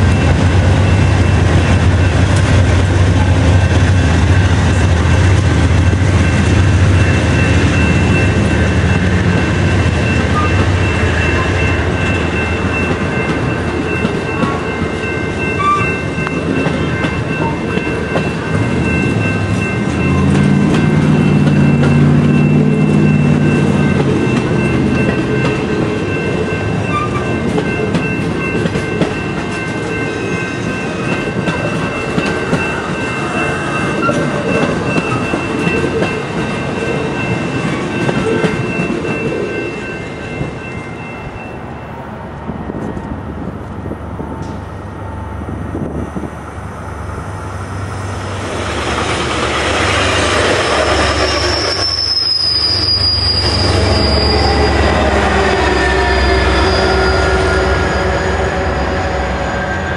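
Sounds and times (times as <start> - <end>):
wheels ringing on rail: 0.0 - 59.9
train wheels clacking over rail joints: 16.2 - 25.9.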